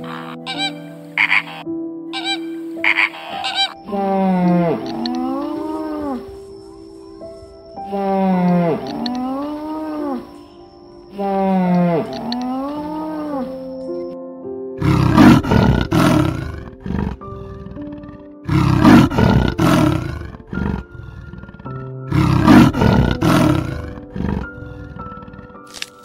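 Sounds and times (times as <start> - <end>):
background music: 0.0 - 26.0
tiger roaring: 3.2 - 6.3, 7.9 - 10.2, 14.8 - 25.7.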